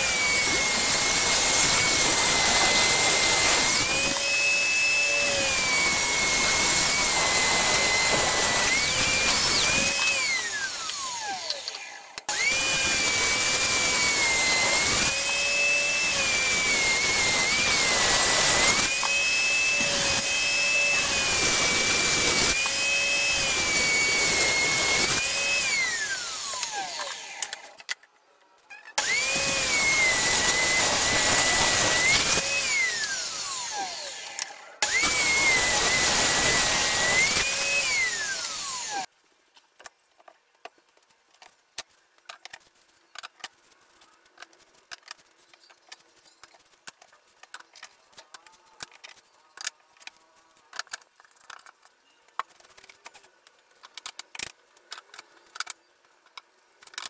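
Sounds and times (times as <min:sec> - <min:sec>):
table saw whining: 0:00.0 - 0:27.8, 0:28.9 - 0:39.1.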